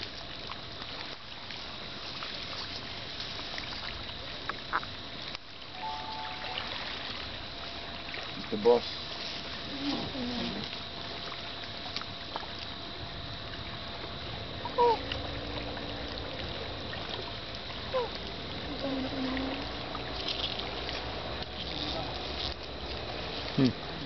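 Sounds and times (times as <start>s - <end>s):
water noise around boat: 0.0s - 24.0s
short falling-pitch sound: 5.8s - 7.0s.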